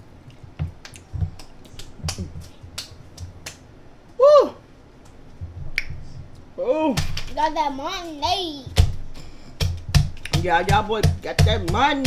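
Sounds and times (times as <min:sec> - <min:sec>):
wet mouth clicks and smacks eating: 0:00.2 - 0:03.7, 0:09.8 - 0:10.4.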